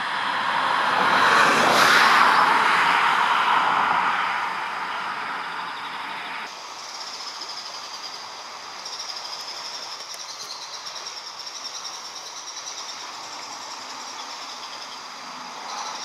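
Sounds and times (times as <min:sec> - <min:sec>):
insects buzzing: 0:05.4 - 0:16.0.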